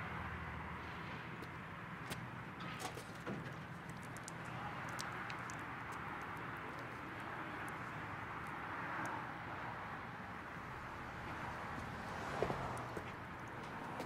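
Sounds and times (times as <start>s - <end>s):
distant traffic hum: 0.0s - 14.0s.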